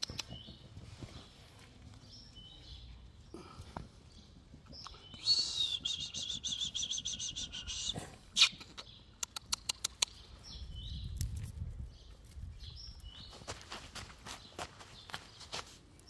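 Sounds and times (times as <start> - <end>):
bird trilling and chirping: 4.1 - 11.2.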